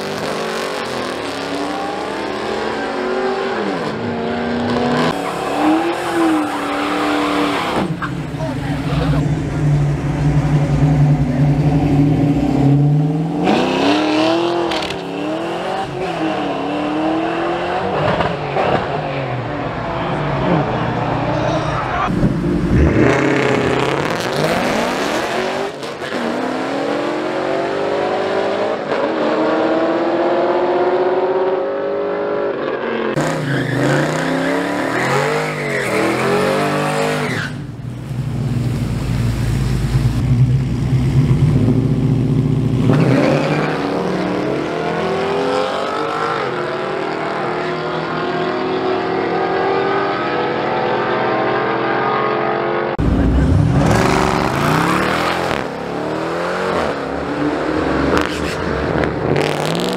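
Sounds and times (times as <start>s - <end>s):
drag racing cars accelerating: 0.0s - 37.7s, 40.1s - 59.9s
deep steady engine rumble: 8.1s - 13.0s.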